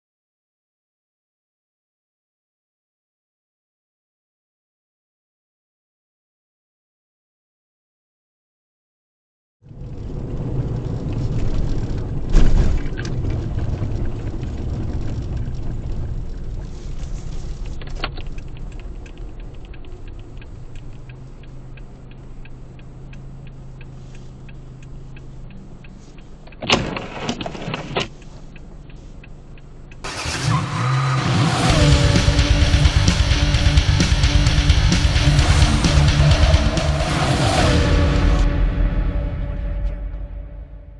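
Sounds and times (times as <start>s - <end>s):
car engine and road rumble: 9.6s - 40.9s
guitar-driven music: 31.2s - 40.9s.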